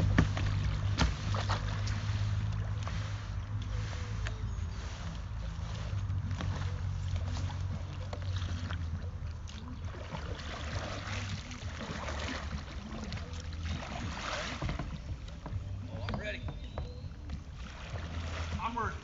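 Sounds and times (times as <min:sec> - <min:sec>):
paddle splashing in water: 0:00.0 - 0:19.0
steady low rumble: 0:00.0 - 0:19.0.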